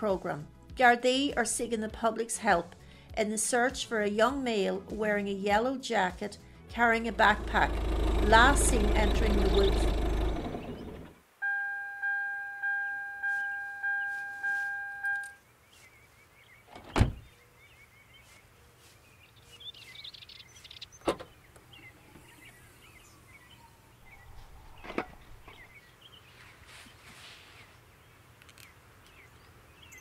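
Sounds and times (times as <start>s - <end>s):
birds chirping: 6.9s - 11.2s, 13.2s - 30.0s
car warning chime: 11.4s - 15.4s
car door shutting: 16.8s - 17.2s, 21.0s - 21.4s.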